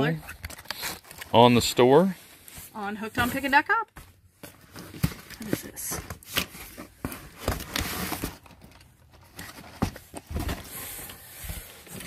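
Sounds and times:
cardboard scraping rustle: 2.0 - 3.8, 4.5 - 12.0.

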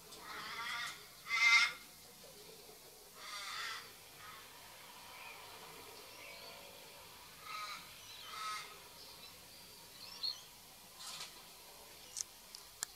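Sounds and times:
crow cawing: 0.2 - 1.8, 3.2 - 4.5, 7.4 - 8.8
small bird chirping: 8.0 - 10.5.

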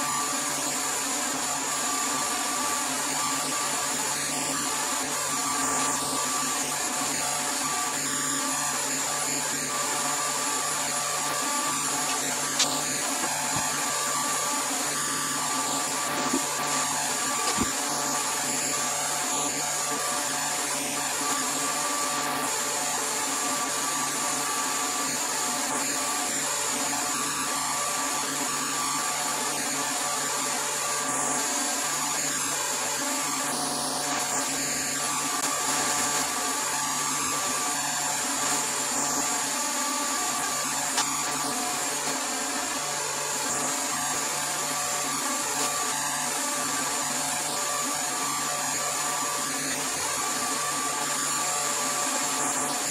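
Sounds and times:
vacuum pump humming: 0.0 - 26.0.

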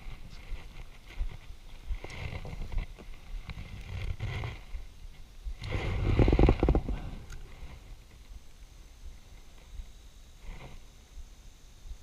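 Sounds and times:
creaking rub: 0.0 - 4.8, 5.6 - 8.0, 10.4 - 10.9
hand rubbing and knocking camera: 5.6 - 7.9.

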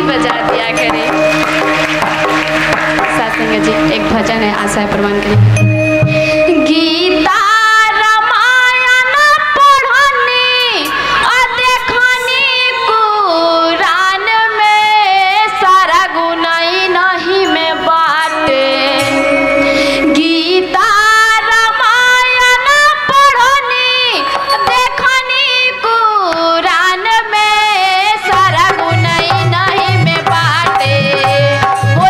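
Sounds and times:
woman singing devotional song: 0.0 - 1.3, 3.0 - 5.4, 6.2 - 32.0
hand drum beat: 0.2 - 4.3, 28.4 - 32.0.

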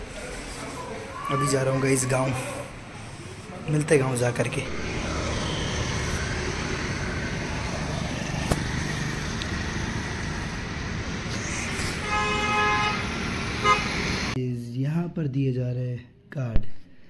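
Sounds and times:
road traffic rushing: 0.0 - 14.4
vehicle horn: 12.0 - 14.0.

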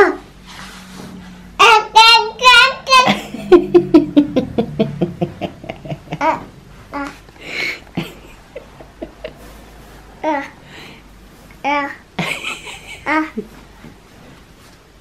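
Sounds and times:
baby chuckling laughs: 3.0 - 6.5, 12.2 - 13.5.

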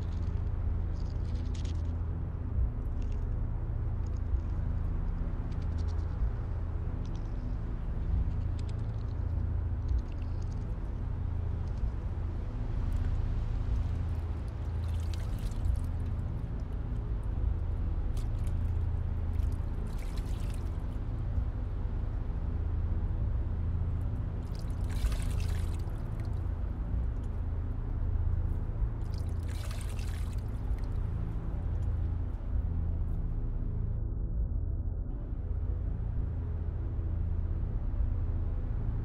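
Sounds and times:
low droning hum: 0.0 - 39.0
water pouring from cupped hands: 24.6 - 25.9, 29.1 - 30.8.

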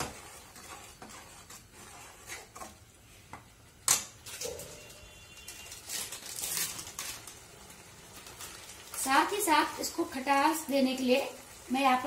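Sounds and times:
metal spatula scraping paste in pan: 0.0 - 3.3.

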